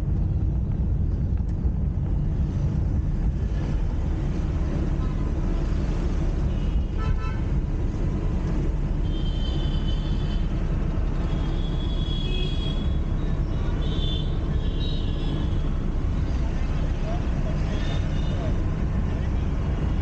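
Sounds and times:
car engine and road rumble: 0.0 - 20.0
car horn toots: 11.4 - 13.0.

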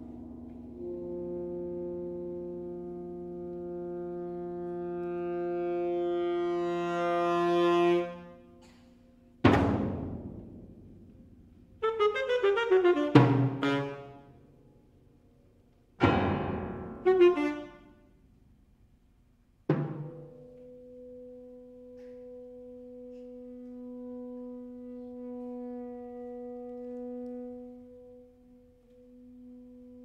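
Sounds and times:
alto saxophone: 0.7 - 9.4, 11.8 - 14.5, 16.8 - 18.4, 20.3 - 30.0
piano: 16.0 - 18.0.

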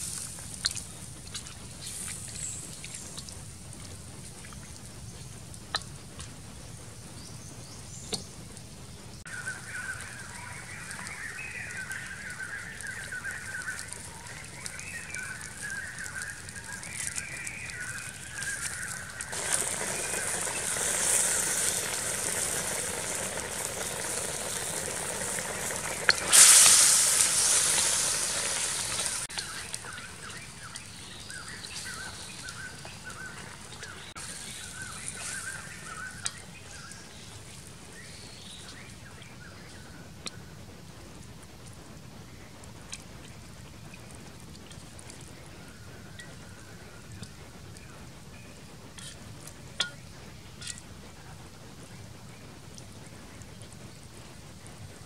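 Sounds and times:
soup bubbling and sizzling in a wok: 0.0 - 55.0
birds chirping: 9.1 - 26.3, 27.2 - 40.0.

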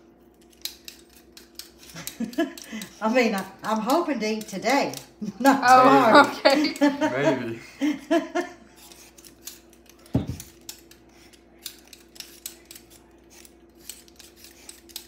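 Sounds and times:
peelers scraping potato skins: 0.3 - 5.8, 8.7 - 15.0.

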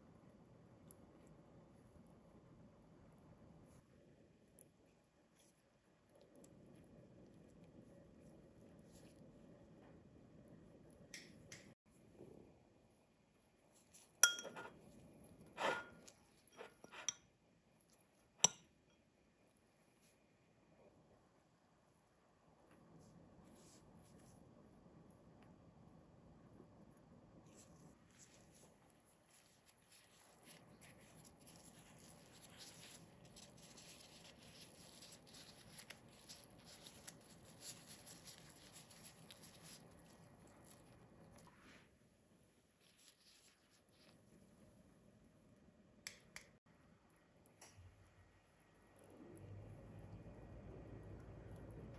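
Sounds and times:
metal spoon clinking on glass bowl: 14.2 - 14.8
plastic gloves rustling and crackling: 27.4 - 41.5, 42.7 - 44.5.

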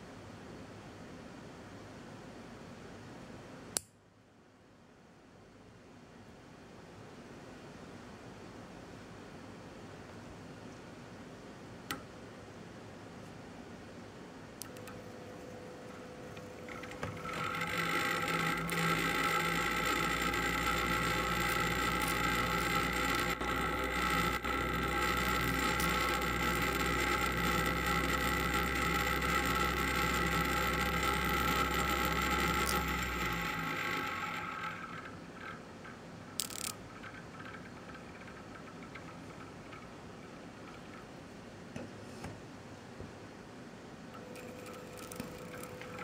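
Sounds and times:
click: 3.8 - 4.0, 11.9 - 12.1, 14.6 - 15.0
motor rattling whir: 14.6 - 41.3, 44.2 - 46.0.

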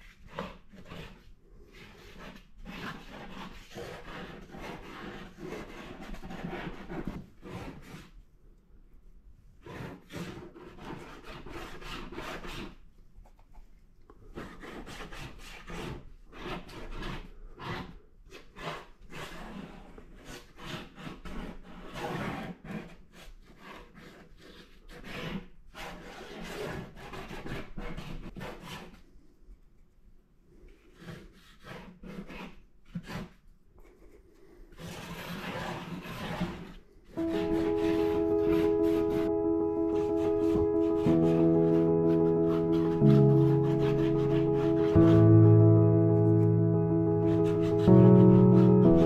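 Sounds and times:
paintbrush scrubbing on paper: 0.0 - 8.2, 9.6 - 12.8, 14.3 - 29.0, 30.9 - 33.4, 34.8 - 45.6, 46.2 - 49.0.

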